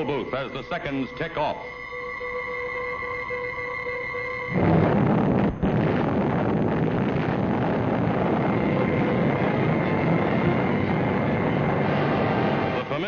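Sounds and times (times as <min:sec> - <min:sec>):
explosion rumble: 0:04.6 - 0:13.0.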